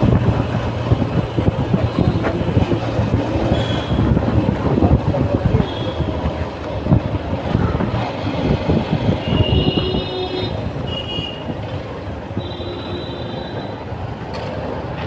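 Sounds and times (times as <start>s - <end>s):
traffic engines rumbling: 0.0s - 15.0s
wind: 0.0s - 15.0s
vehicle horn beeping: 3.5s - 4.0s, 9.2s - 11.5s, 12.4s - 13.8s.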